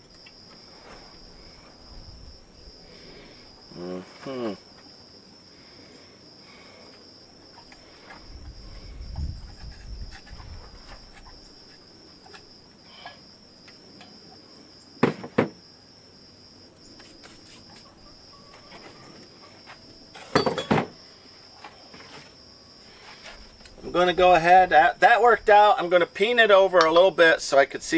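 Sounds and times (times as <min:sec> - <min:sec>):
insects chirring: 0:00.0 - 0:27.9
metal clanks: 0:20.1 - 0:21.0.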